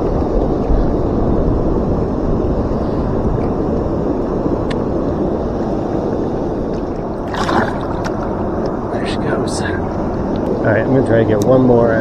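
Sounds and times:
wind buffeting the microphone: 0:00.0 - 0:12.0
river water rushing over a dam: 0:07.0 - 0:08.4.

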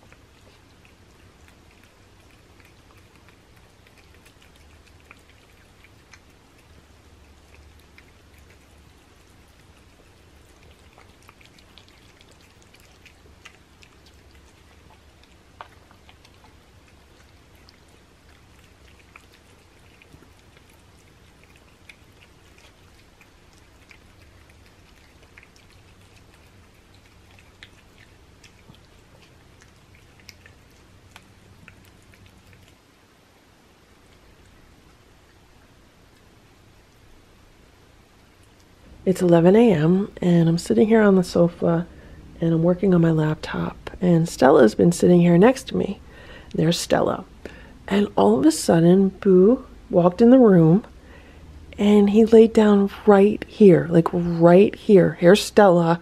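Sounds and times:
wet smacking and licking clicks: 0:00.0 - 0:32.8
cats eating wet food: 0:00.0 - 0:56.0
low steady hum: 0:00.0 - 0:56.0.

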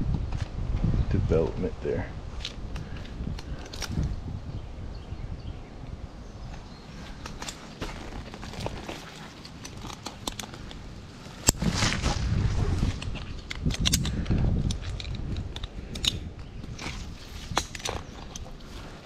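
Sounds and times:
low rumbling: 0:00.0 - 0:19.0
rustling against tree: 0:00.0 - 0:19.0
metal climbing hardware clinking: 0:02.4 - 0:04.2, 0:06.4 - 0:11.7, 0:12.9 - 0:19.0.

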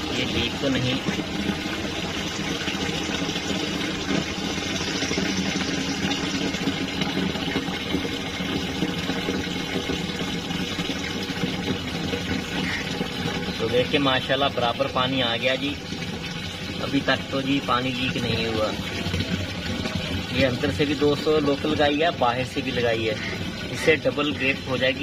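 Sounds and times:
mechanical hum: 0:00.0 - 0:14.2
water running into plastic tank: 0:00.0 - 0:25.0.

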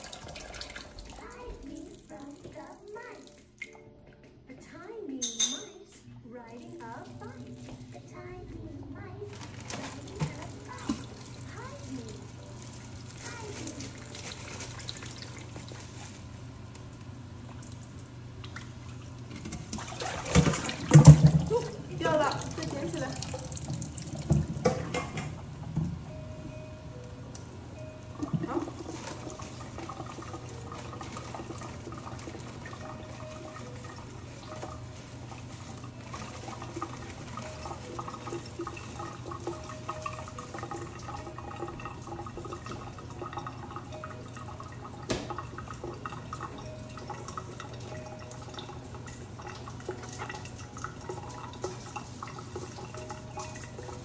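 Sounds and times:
tap water running into sink: 0:00.0 - 0:03.8, 0:09.3 - 0:26.2, 0:27.3 - 0:54.0
dishes clinking: 0:05.2 - 0:06.0, 0:24.2 - 0:26.0.

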